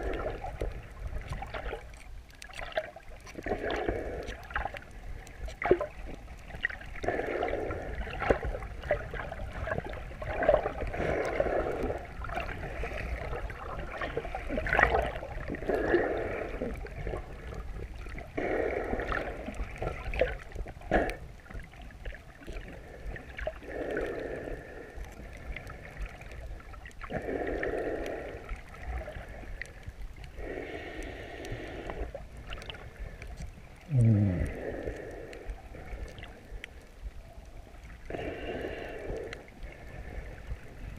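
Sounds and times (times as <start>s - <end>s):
breathing through a snorkel underwater: 3.3s - 4.9s, 6.5s - 8.6s, 10.2s - 20.2s, 22.5s - 26.4s, 27.0s - 37.0s, 37.8s - 40.9s.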